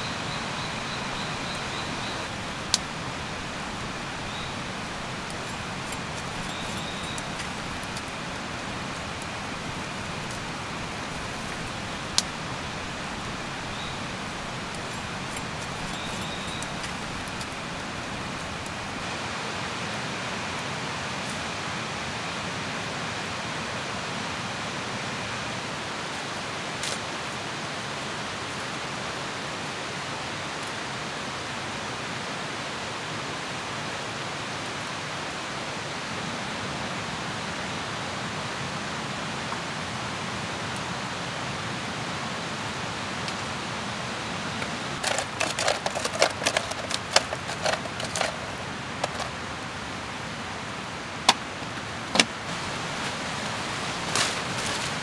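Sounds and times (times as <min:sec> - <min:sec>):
campfire crackling: 0:00.0 - 0:19.2, 0:39.4 - 0:55.0.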